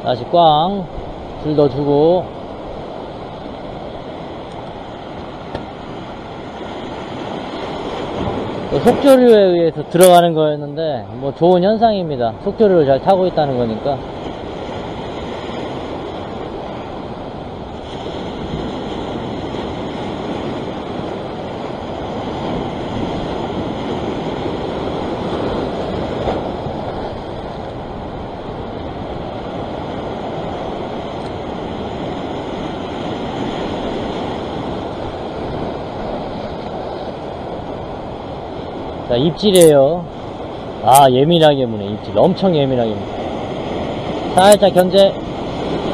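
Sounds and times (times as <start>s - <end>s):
sea surf washing on rocks: 0.0s - 45.9s
wind on microphone: 13.3s - 45.9s.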